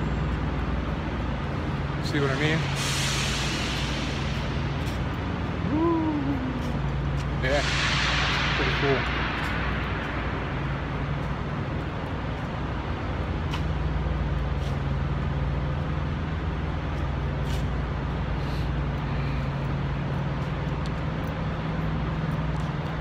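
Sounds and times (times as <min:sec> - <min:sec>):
low machine drone: 0:00.0 - 0:23.0
faint light ticks: 0:19.6 - 0:23.0.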